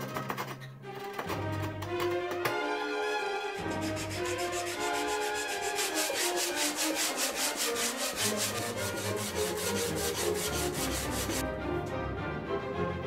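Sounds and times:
background music: 0:00.0 - 0:13.0
wooden block scraping on sandpaper: 0:03.6 - 0:11.4.

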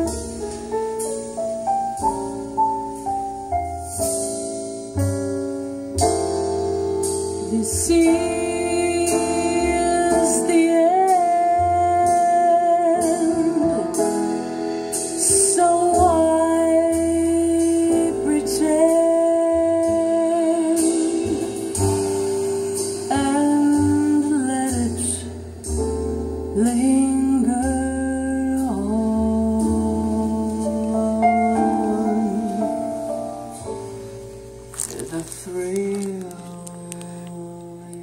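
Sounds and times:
guitar and piano music: 0:00.0 - 0:38.0
woman singing long notes: 0:26.6 - 0:33.0.

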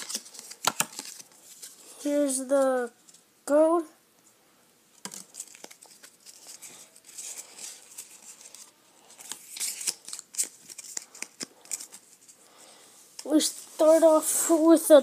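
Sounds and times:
trading cards rustling and clicking: 0:00.0 - 0:01.8, 0:05.0 - 0:12.4.

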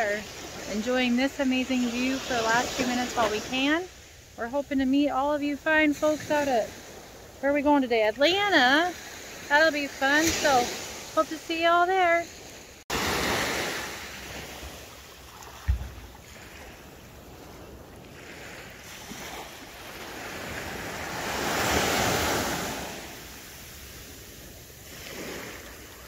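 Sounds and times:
small waves breaking on sand: 0:00.0 - 0:04.3, 0:05.5 - 0:26.0
low thump: 0:15.6 - 0:16.1.

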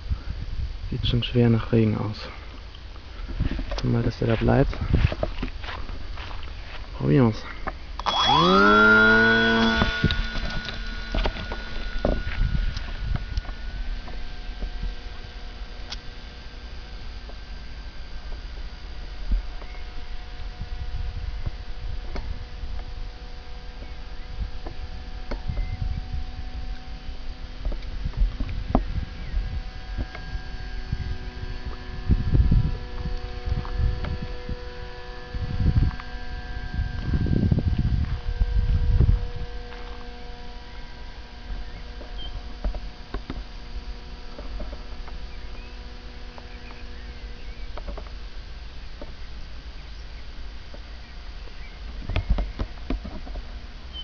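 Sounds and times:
wind rumble on microphone: 0:00.0 - 0:07.0, 0:07.8 - 0:49.1
faint steady hum: 0:00.0 - 0:54.0
microphone handling noise: 0:02.2 - 0:23.1, 0:23.8 - 0:26.9, 0:27.5 - 0:49.2.

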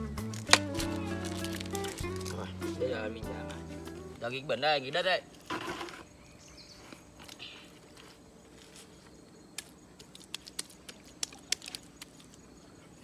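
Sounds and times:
hands patting wet mud: 0:00.0 - 0:02.6, 0:07.2 - 0:13.0.

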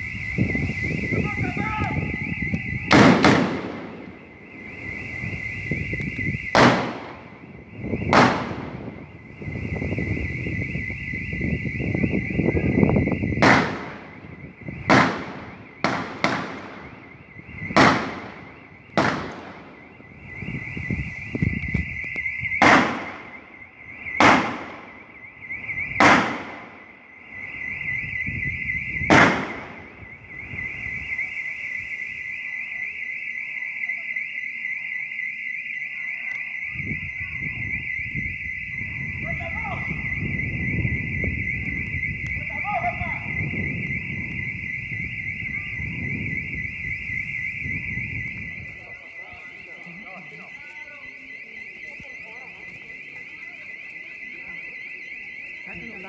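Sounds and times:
high-pitched alarm: 0:00.0 - 0:56.0
distant gunshots echoing: 0:02.9 - 0:04.1, 0:06.5 - 0:07.2, 0:08.1 - 0:08.8, 0:13.4 - 0:14.1, 0:14.9 - 0:17.0, 0:17.7 - 0:19.8, 0:22.6 - 0:23.4, 0:24.1 - 0:24.9, 0:26.0 - 0:26.8, 0:29.0 - 0:29.9.

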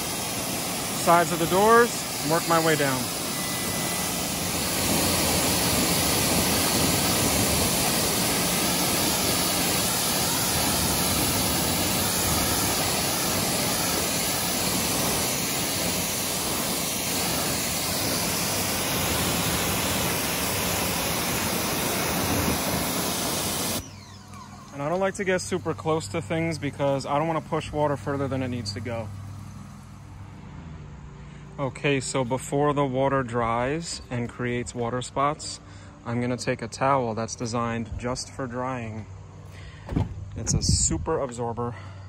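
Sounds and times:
pressure washer spraying water: 0:00.0 - 0:30.0.

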